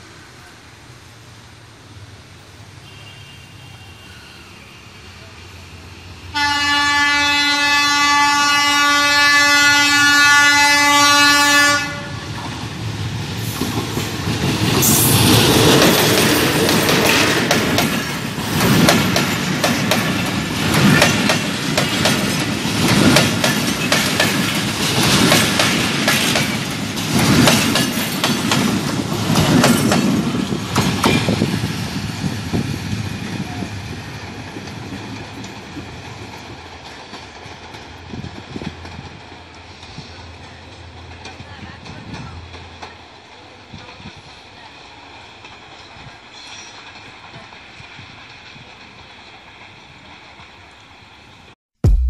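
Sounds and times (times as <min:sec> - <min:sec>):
train wheels clattering over rail joints: 0:12.4 - 0:33.4, 0:34.2 - 0:44.5.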